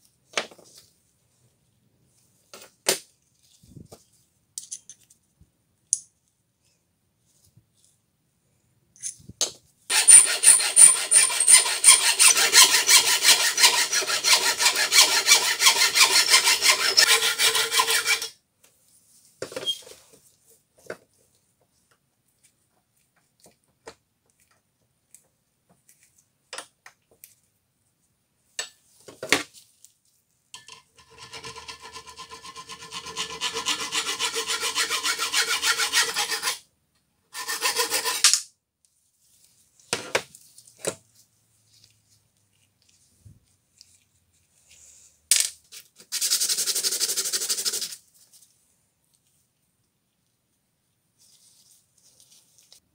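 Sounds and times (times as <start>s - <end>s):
hacksaw sawing through metal tube: 9.9s - 18.4s, 31.0s - 36.6s, 37.4s - 38.4s.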